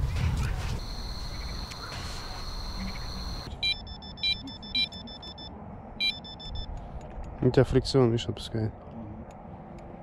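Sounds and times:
bite alarm beeping: 0:00.8 - 0:06.7
steady high-pitched tone: 0:00.8 - 0:06.7.

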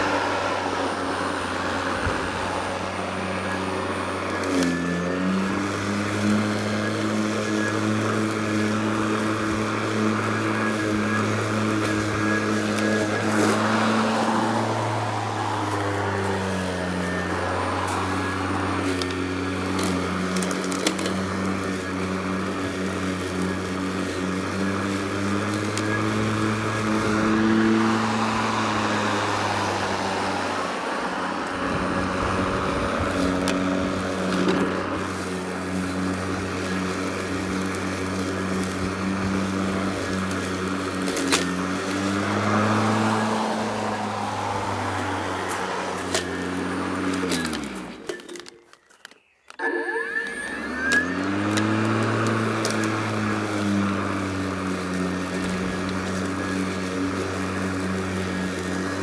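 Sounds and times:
lawn mower humming: 0:00.0 - 0:59.0.

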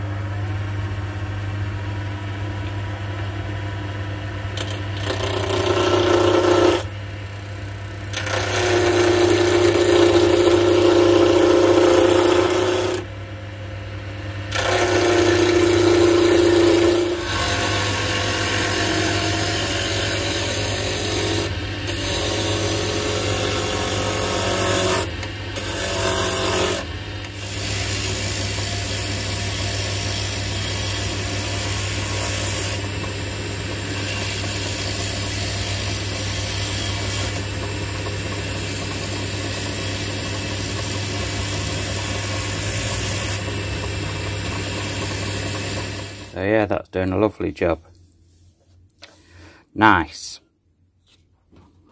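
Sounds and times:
gouge scraping spinning wood: 0:04.6 - 0:06.9, 0:07.6 - 0:13.1, 0:14.5 - 0:46.4
lathe motor hum: 0:04.6 - 0:06.9, 0:07.6 - 0:13.1, 0:14.5 - 0:46.4.

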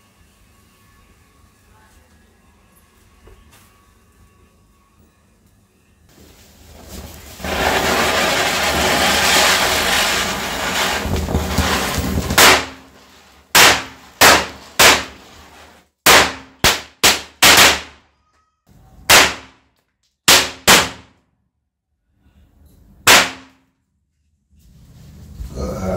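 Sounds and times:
firecrackers banging: 0:06.7 - 0:18.0, 0:19.1 - 0:19.6, 0:20.3 - 0:21.1, 0:23.1 - 0:23.6.

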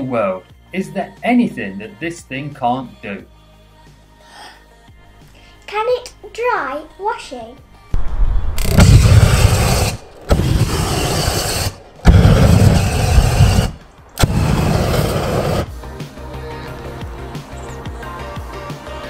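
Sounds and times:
background music: 0:00.0 - 0:19.0
propane torch blasts: 0:08.6 - 0:15.8.

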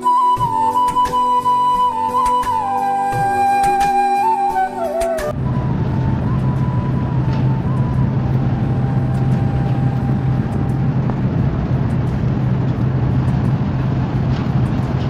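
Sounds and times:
train rumble inside carriage: 0:04.8 - 0:15.0.

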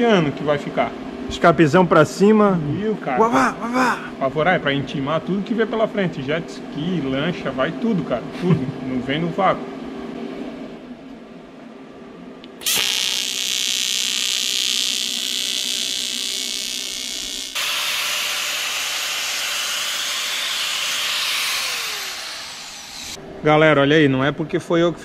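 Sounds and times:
angle grinder running: 0:12.6 - 0:23.2
welding arc buzzing hiss: 0:12.6 - 0:23.2.

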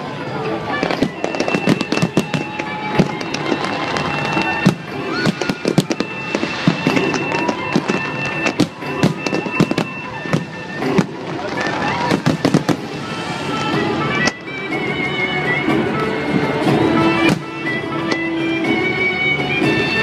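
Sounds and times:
fireworks bursting: 0:00.0 - 0:15.0
sharp bangs and crackles: 0:00.7 - 0:14.5.

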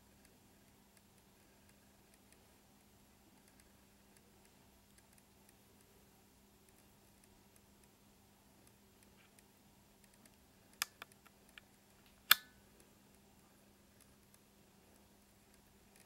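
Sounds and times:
faint irregular ticks: 0:00.0 - 0:16.0.

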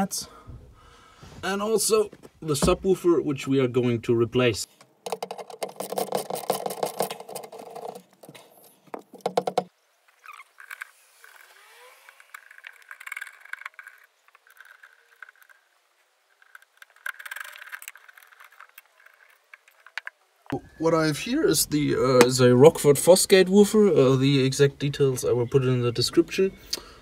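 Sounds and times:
wiring scraping and rustling: 0:05.0 - 0:20.6.

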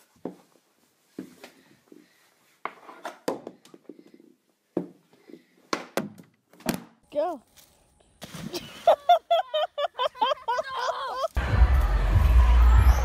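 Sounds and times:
hockey stick clacking ball and floor: 0:02.6 - 0:04.2.

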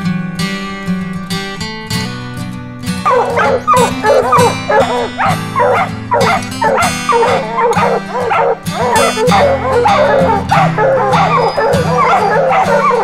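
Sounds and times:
acoustic guitar music: 0:00.0 - 0:13.0
hounds baying: 0:03.0 - 0:13.0.

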